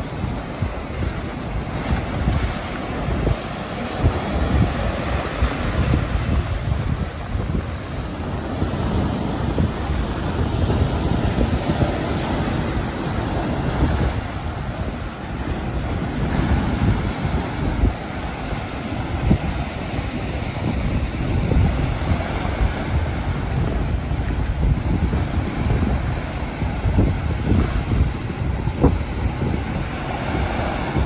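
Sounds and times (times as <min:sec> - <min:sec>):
sea waves breaking on rocks: 0:00.0 - 0:31.0
wind buffeting microphone: 0:00.0 - 0:31.0.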